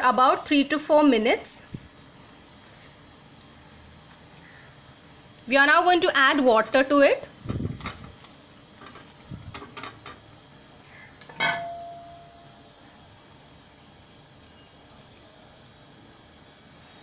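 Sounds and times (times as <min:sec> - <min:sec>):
faint sizzle: 0:00.0 - 0:17.0
sharp ringing clink: 0:11.3 - 0:12.6.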